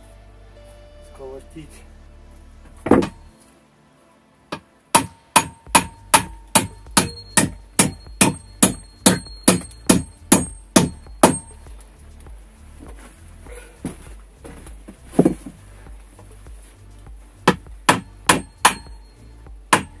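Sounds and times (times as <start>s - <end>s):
ringing tone: 0.5s - 1.9s, 6.7s - 11.8s, 18.4s - 19.6s
hammer driving nails into wood: 4.5s - 11.6s, 17.5s - 19.0s, 19.7s - 20.0s.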